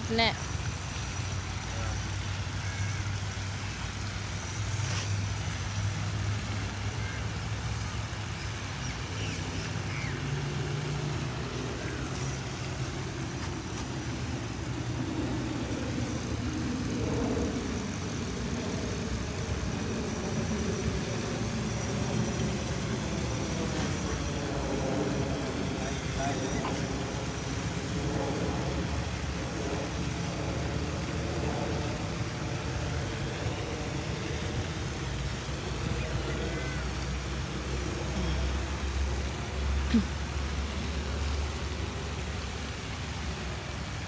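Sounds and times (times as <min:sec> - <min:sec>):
low hum: 0:00.0 - 0:44.0
low rumble and hiss: 0:00.0 - 0:44.0.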